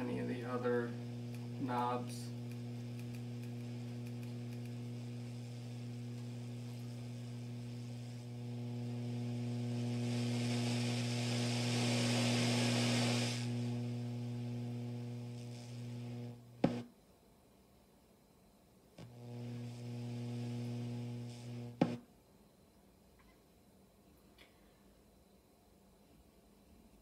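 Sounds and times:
loud hiss: 0:00.0 - 0:16.8, 0:19.2 - 0:22.0
amplifier buzzing hum: 0:00.0 - 0:17.2, 0:18.3 - 0:22.3
amplifier pop: 0:21.8 - 0:22.0.

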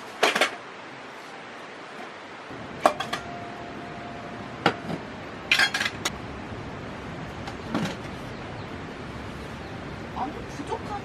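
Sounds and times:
metal cookware clinking: 0:02.8 - 0:03.6, 0:05.5 - 0:06.1.

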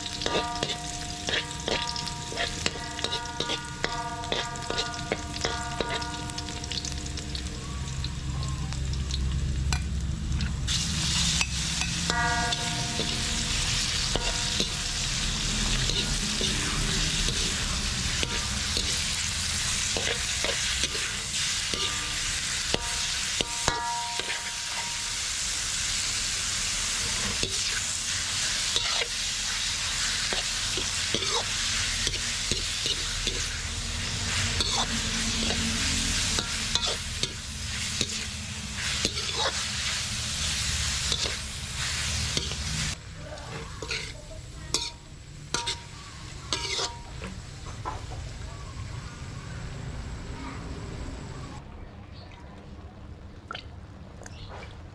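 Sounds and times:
metal spatula scraping a wok: 0:00.0 - 0:07.0, 0:10.7 - 0:47.4
beef sizzling in a hot wok: 0:00.0 - 0:49.4.

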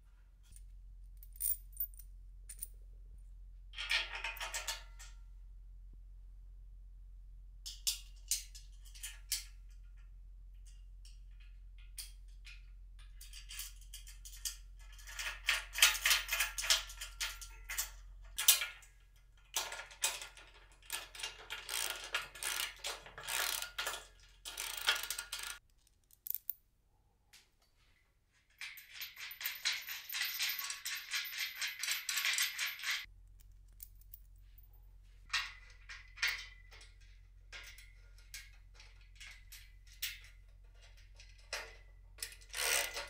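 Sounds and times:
metal hardware clicking and scraping: 0:19.8 - 0:26.6.

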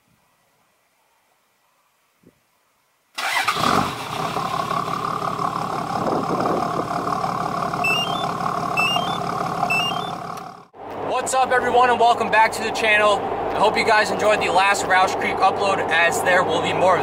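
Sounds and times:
diesel engine idling: 0:03.2 - 0:10.8
rising three-note chirp: 0:07.8 - 0:10.2.

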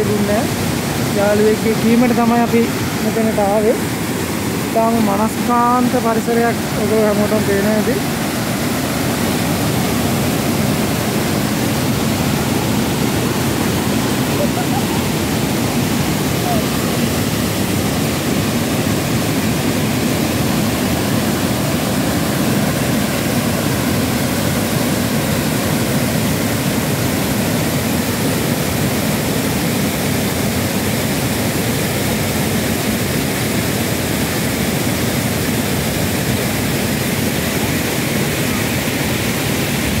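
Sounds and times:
water rushing over weir and rapids: 0:00.0 - 0:40.0.

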